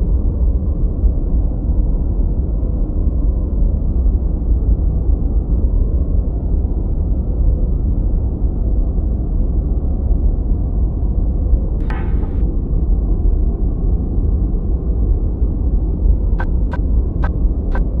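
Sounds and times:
deep rumbling drone: 10.7 - 18.0.

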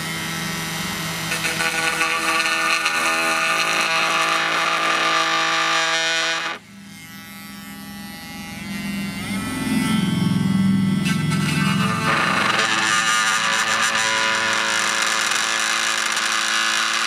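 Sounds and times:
oscillating multi-tool cutting board: 0.0 - 17.0.

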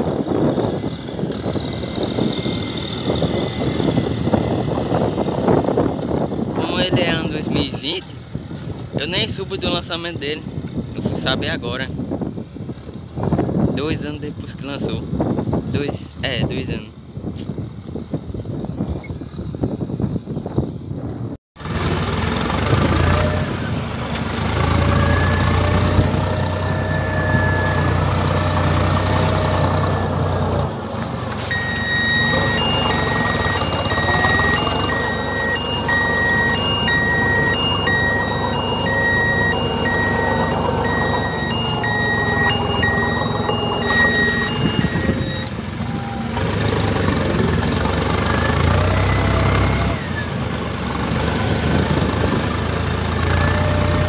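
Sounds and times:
tractor diesel engine running: 0.0 - 14.4, 17.9 - 54.0
electronic beeper: 31.5 - 45.5.

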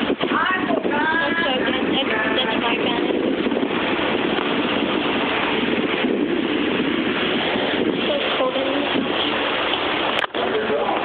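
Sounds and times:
rushing noise: 0.0 - 11.0
person speaking: 8.0 - 9.7.

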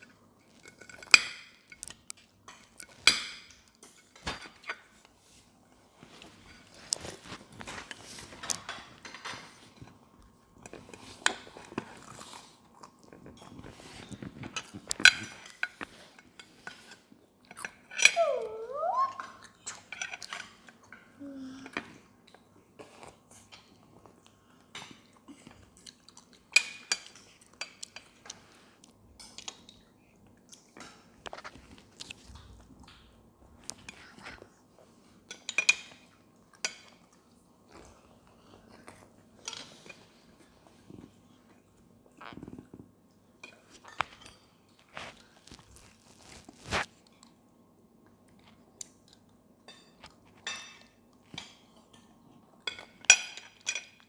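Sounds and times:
cutlery clinking on plates: 35.2 - 37.1, 49.6 - 54.0.

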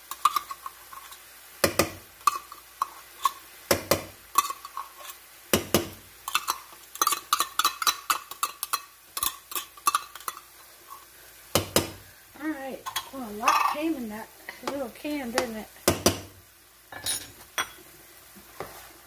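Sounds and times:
utensil clinking against frying pan: 5.6 - 10.5.

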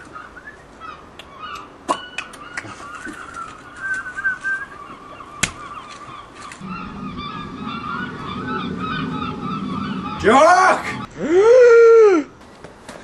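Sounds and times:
birds chirping: 0.0 - 11.2
low steady hum: 6.5 - 11.4.

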